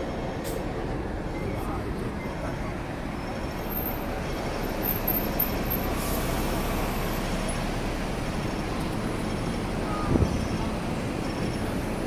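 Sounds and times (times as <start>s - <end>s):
tram rumbling over rails: 0.0s - 12.0s.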